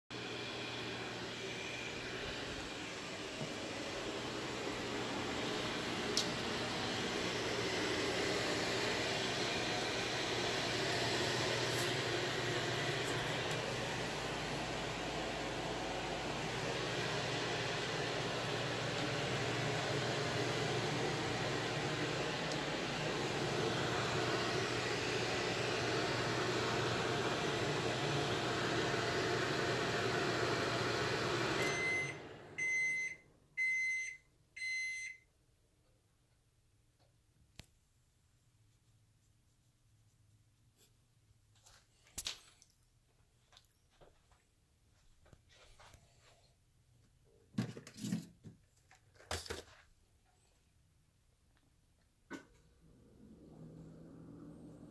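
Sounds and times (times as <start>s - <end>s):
kitchen appliance humming: 0.1s - 33.8s.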